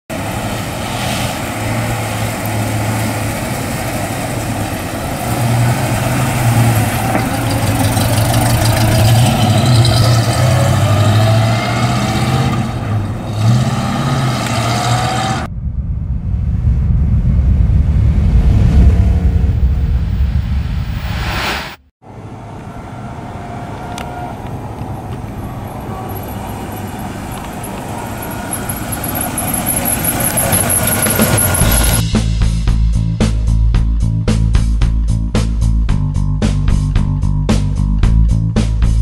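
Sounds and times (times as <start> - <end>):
car engine accelerating: 0.1 - 21.2, 22.0 - 32.1
deep rumbling logo sound effect: 15.5 - 21.8.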